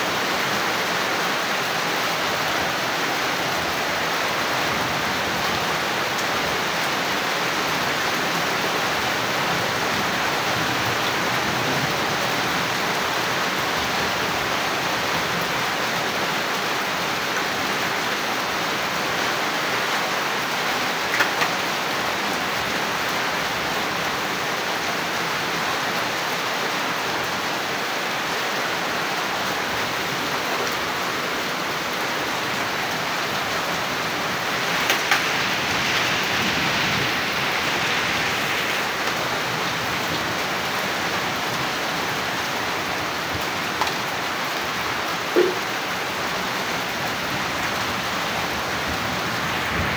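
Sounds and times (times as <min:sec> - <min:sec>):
heavy rain falling: 0:00.0 - 0:49.9
water running off roof: 0:32.7 - 0:49.9.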